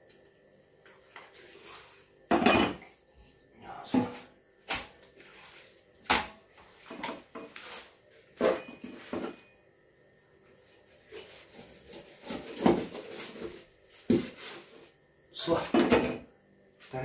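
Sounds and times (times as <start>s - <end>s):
utensils and dishes clattering on wood: 8.4s - 9.5s.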